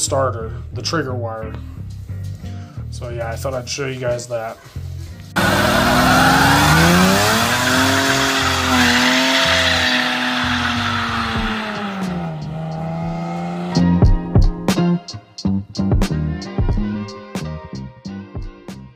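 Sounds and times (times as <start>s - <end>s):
tires squealing: 5.4s - 13.9s
car engine revving high: 5.4s - 14.1s.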